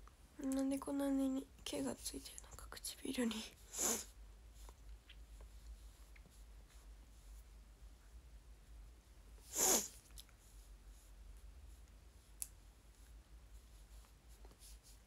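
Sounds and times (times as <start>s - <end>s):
sharp burst of breath: 3.7s - 4.1s, 9.5s - 10.0s.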